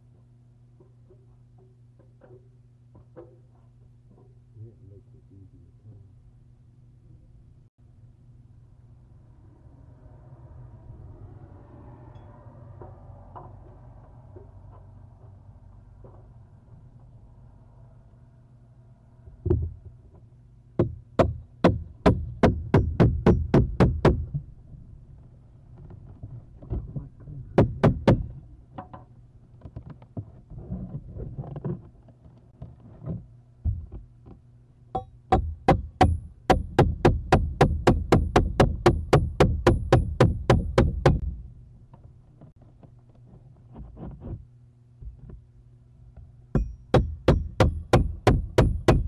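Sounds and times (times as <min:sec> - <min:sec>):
rapid knocks: 0:20.8 - 0:24.4, 0:27.6 - 0:29.1, 0:35.0 - 0:41.2, 0:46.6 - 0:49.0.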